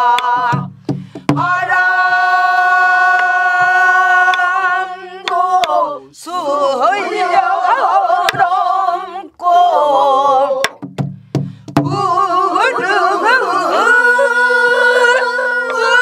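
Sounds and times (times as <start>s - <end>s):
folk singing with vibrato: 0.0s - 10.8s, 11.8s - 16.0s
sharp drum strokes: 0.3s - 1.8s.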